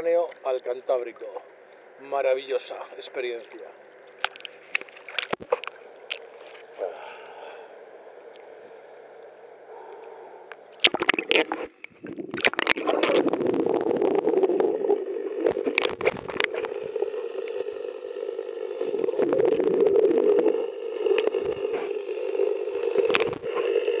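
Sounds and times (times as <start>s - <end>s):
seawater lapping: 2.9s - 24.0s
muffled underwater gurgling rumble: 10.8s - 24.0s.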